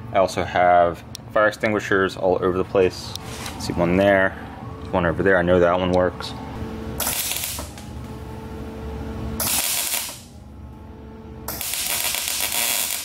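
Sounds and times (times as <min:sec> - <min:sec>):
welder arc noise: 0:06.9 - 0:08.2, 0:09.4 - 0:10.4, 0:11.4 - 0:13.0.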